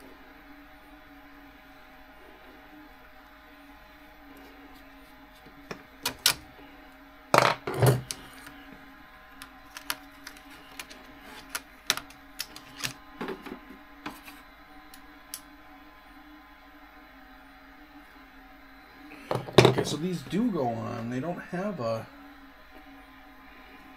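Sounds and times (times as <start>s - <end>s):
tools clattering on a workbench: 7.4s - 8.4s, 19.3s - 19.9s.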